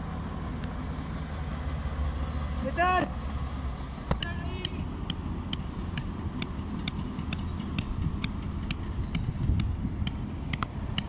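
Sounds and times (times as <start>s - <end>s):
low engine rumble: 0.0s - 11.0s
hammer tapping on metal: 4.1s - 11.0s.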